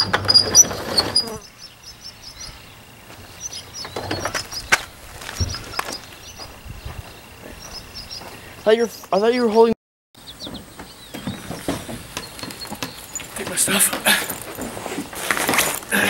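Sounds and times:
wooden door scraping open: 0.0s - 1.5s, 3.9s - 4.5s
small birds chirping: 0.0s - 15.2s
footsteps: 3.0s - 9.2s, 10.4s - 16.0s
wood knocking: 10.4s - 15.8s.

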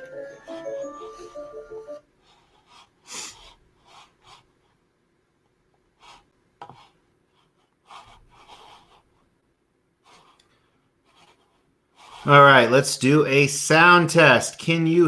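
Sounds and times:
computer mouse rubbing on desk: 2.4s - 4.8s, 6.0s - 9.3s, 10.0s - 10.4s, 11.0s - 12.6s.

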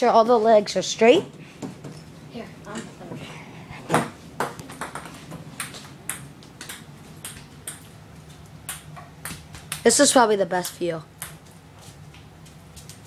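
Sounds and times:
table tennis ball clicks: 4.4s - 7.9s, 8.6s - 11.4s.

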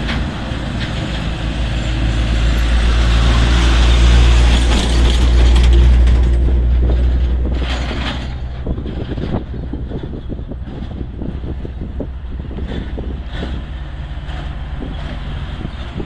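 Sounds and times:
truck diesel engine passing: 0.0s - 16.0s
knocks and rattles: 3.8s - 16.0s.

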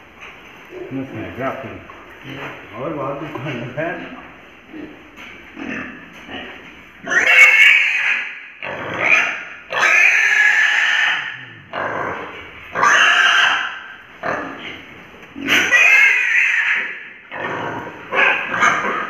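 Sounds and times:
piglet squealing: 7.0s - 11.4s, 12.8s - 13.8s, 15.4s - 19.0s.

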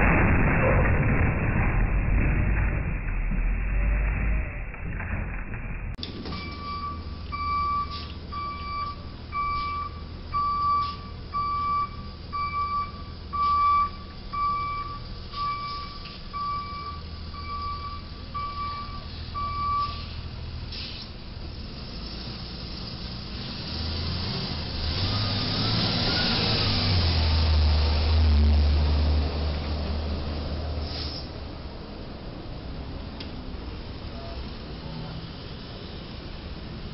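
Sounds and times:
truck reversing beeper: 6.2s - 21.0s.

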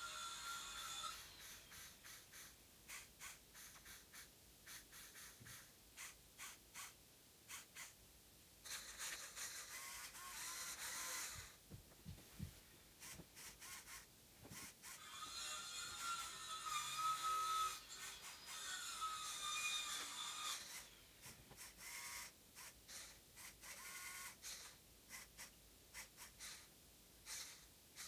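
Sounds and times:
toy motors and gears clicking: 0.0s - 8.0s, 8.6s - 11.6s, 13.0s - 28.0s.

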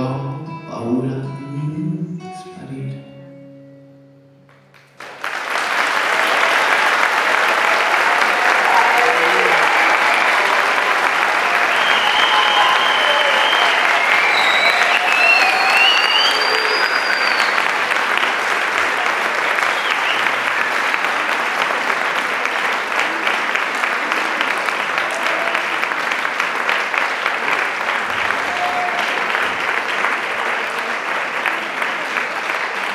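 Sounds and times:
audience applauding: 4.5s - 32.9s
high whistle: 11.6s - 17.8s, 19.6s - 20.5s.

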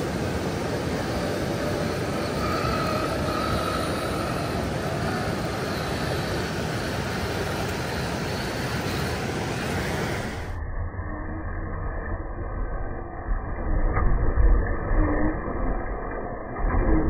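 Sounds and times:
toy truck electric motor whine: 1.0s - 10.6s.

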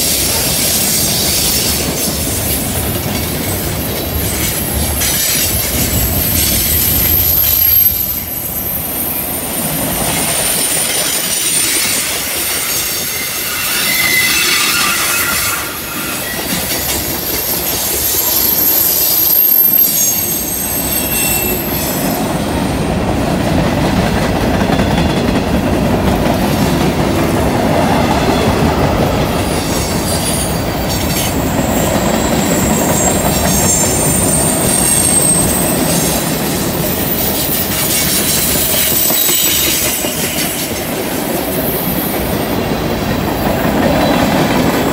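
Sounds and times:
steel wheels rumbling on rails: 0.0s - 44.9s
wheel flange squeal: 4.3s - 22.3s, 29.4s - 36.2s, 36.9s - 40.6s.

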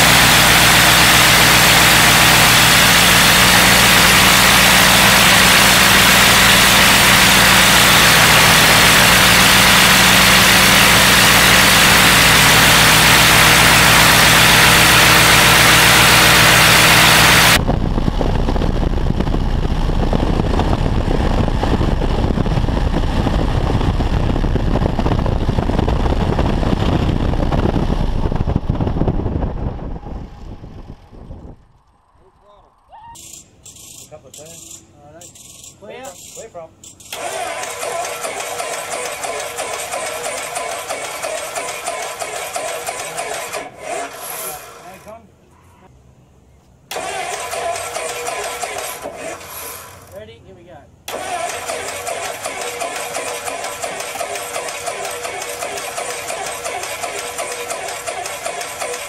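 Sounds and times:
propeller wash rushing: 0.0s - 31.1s, 37.2s - 45.0s, 51.1s - 59.0s
propeller aircraft engine: 0.0s - 31.8s, 36.9s - 45.0s, 46.9s - 50.1s, 51.1s - 59.0s.

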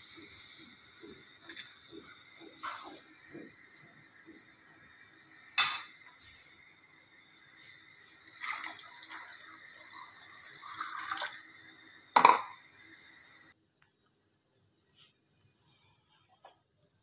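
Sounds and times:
water pouring into a steel bowl: 8.2s - 12.6s.

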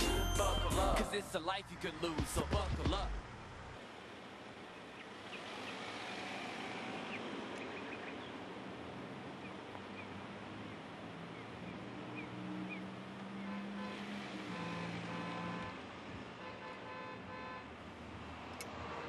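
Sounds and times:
car driving past: 5.2s - 7.9s.

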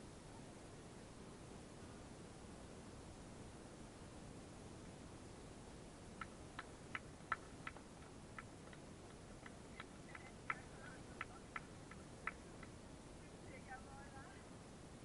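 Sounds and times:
faint handclapping: 6.2s - 12.8s.

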